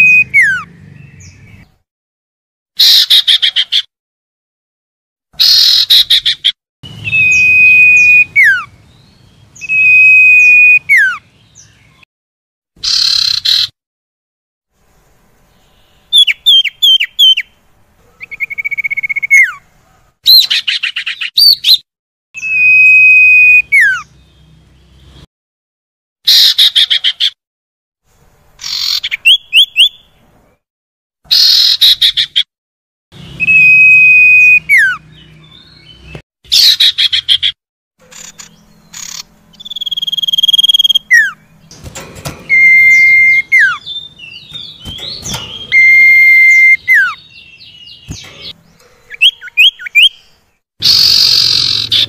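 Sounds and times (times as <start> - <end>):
bird chirps whistles and trills: 0.0 - 1.6, 5.4 - 8.7, 9.6 - 12.0, 16.1 - 17.5, 18.2 - 19.6, 20.3 - 21.8, 22.4 - 24.1, 28.6 - 30.1, 31.3 - 32.4, 33.2 - 48.5, 49.1 - 52.0.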